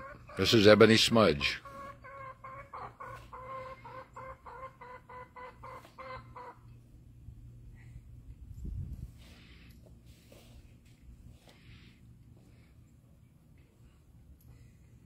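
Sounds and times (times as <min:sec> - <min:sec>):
hen clucking: 0:00.0 - 0:06.7.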